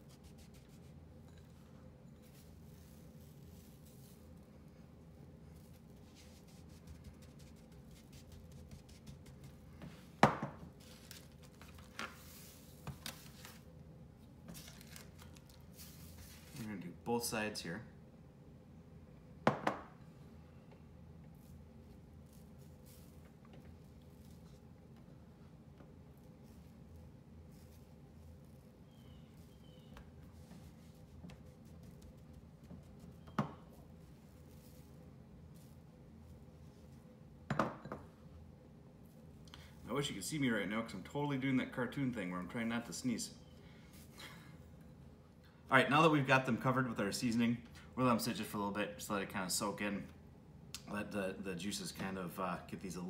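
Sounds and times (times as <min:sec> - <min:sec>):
faint steady hum: 0:00.0 - 0:53.0
hands patting and rubbing meat: 0:05.7 - 0:10.0.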